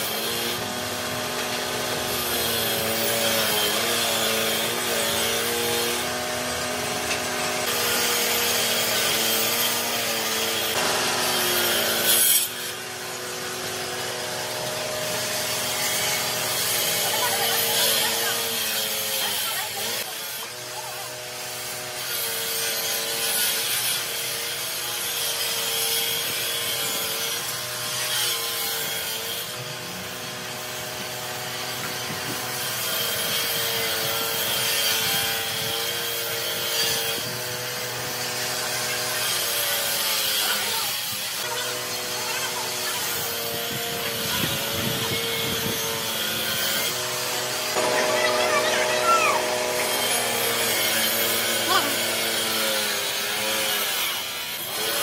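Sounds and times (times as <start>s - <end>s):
sand being scraped: 32.8s - 55.0s.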